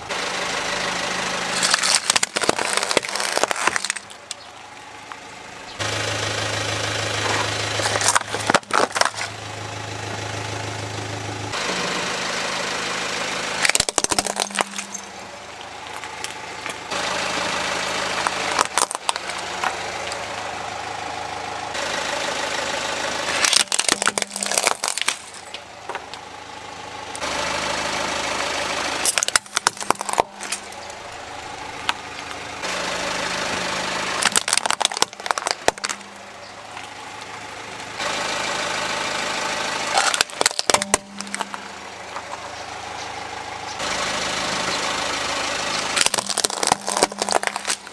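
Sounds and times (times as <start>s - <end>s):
car engine idling: 0.0s - 47.9s
tyre crushing plastic toys: 1.5s - 4.5s, 7.3s - 9.4s, 13.6s - 15.2s, 18.2s - 19.8s, 23.3s - 26.2s, 29.0s - 31.0s, 34.2s - 36.9s, 39.9s - 42.3s, 46.0s - 47.9s.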